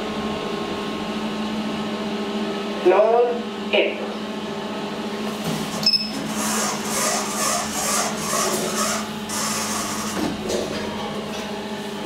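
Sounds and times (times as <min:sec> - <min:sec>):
elevator machinery humming and whirring: 0:00.0 - 0:12.0
elevator button beep: 0:05.8 - 0:06.2.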